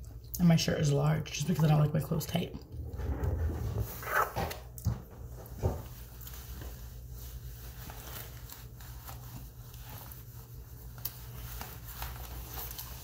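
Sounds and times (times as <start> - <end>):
low room hum: 0.0 - 13.0
cloth rustling: 3.3 - 13.0.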